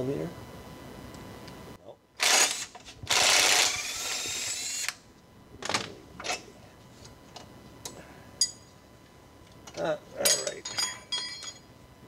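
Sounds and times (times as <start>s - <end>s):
power tool spinning bolt: 2.2s - 5.0s.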